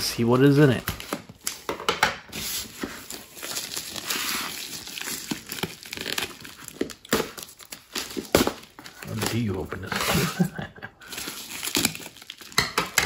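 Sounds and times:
plastic mailer crinkling: 2.4s - 10.4s, 11.0s - 12.6s.

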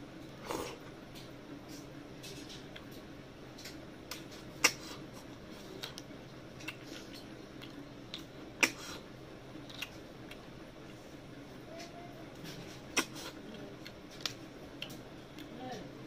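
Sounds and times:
mouth clicks and smacks: 4.1s - 5.0s, 5.8s - 9.0s.

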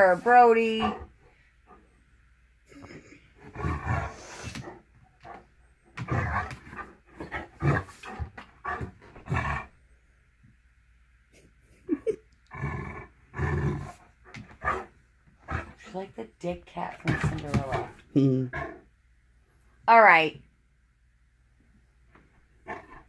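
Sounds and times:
cat growling and hissing: 2.7s - 4.8s.

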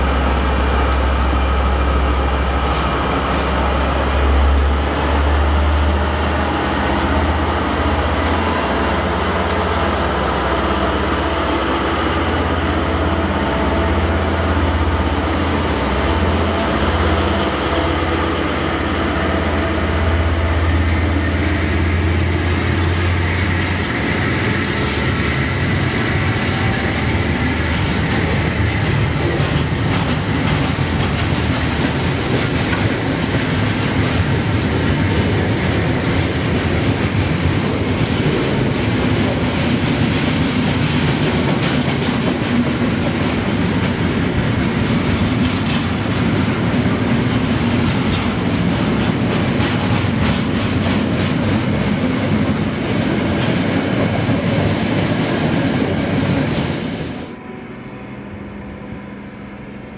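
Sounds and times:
train wagons rumbling: 0.0s - 57.4s
diesel locomotives humming: 0.0s - 59.9s
wheels clacking over rail joints: 21.8s - 57.0s.

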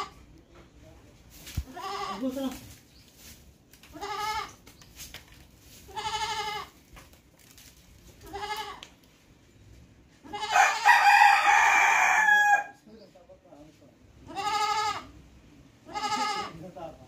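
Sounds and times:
goat bleating: 1.6s - 2.5s, 3.9s - 4.6s, 5.9s - 6.8s, 8.2s - 8.9s, 10.2s - 10.9s, 14.2s - 15.1s, 15.8s - 16.6s.

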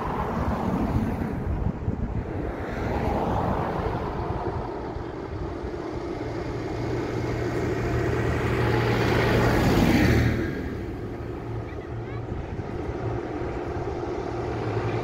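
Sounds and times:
car passing: 0.0s - 15.0s
tractor diesel engine passing: 0.0s - 15.0s.

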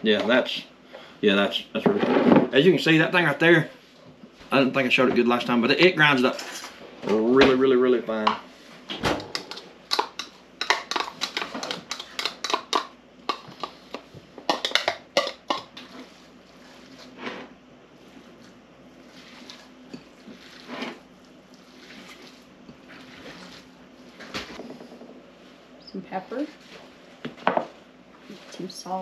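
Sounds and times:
hands mixing meat: 9.3s - 24.6s.

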